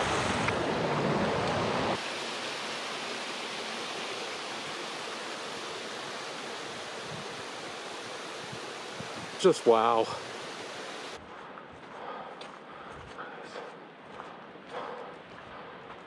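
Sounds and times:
creek water rushing over rocks: 0:00.0 - 0:11.2.

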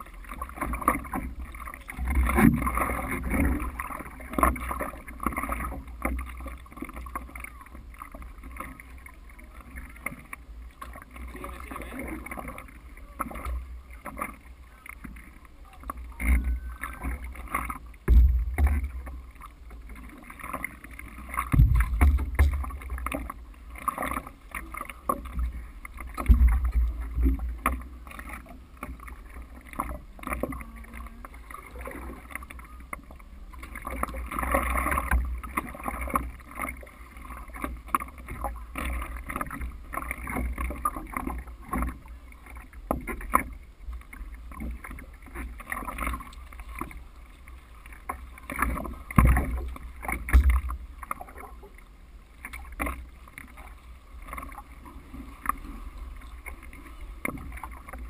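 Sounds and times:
water splashing against board: 0:00.0 - 0:51.8
paddle strokes in water: 0:00.0 - 0:58.0
low thumps: 0:18.0 - 0:19.2, 0:21.5 - 0:23.3, 0:26.2 - 0:27.5, 0:50.2 - 0:50.9.

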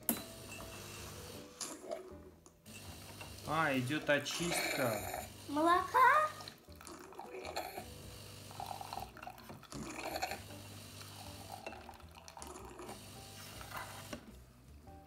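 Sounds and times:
water and steam gurgling: 0:03.0 - 0:14.1
pump humming: 0:04.4 - 0:06.6, 0:07.4 - 0:09.2, 0:09.8 - 0:11.8, 0:12.4 - 0:14.3.

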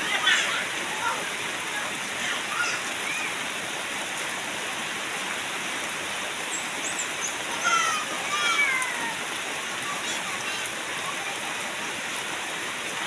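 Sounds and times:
heavy rain on wet ground: 0:00.0 - 0:13.0.

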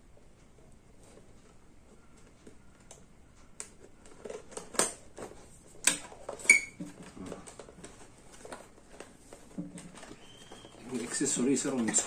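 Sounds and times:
cardboard box being handled: 0:05.2 - 0:12.0.

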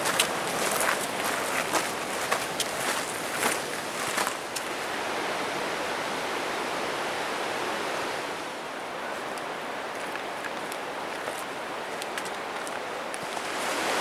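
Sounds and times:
footsteps on gravel: 0:00.0 - 0:04.7, 0:09.9 - 0:13.7
rushing stream water: 0:00.0 - 0:14.0.

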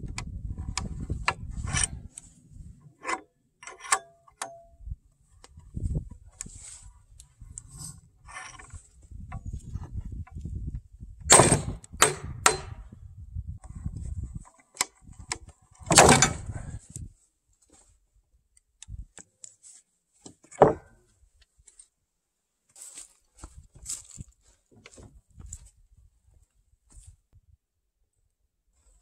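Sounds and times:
sharp metallic knocks: 0:11.3 - 0:12.8.

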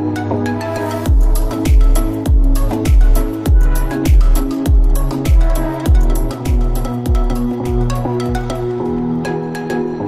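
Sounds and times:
mellow electronic music: 0:00.0 - 0:10.0
low thudding beat: 0:01.1 - 0:08.8.

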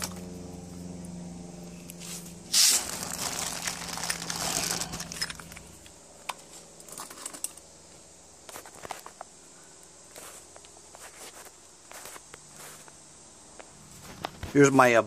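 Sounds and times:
faint steady hum: 0:00.0 - 0:15.0
plastic bag crinkling: 0:02.6 - 0:05.7.

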